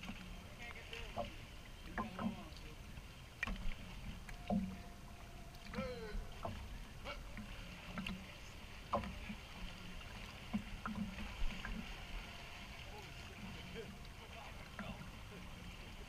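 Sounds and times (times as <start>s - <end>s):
pool water lapping and splashing: 0.0s - 16.0s.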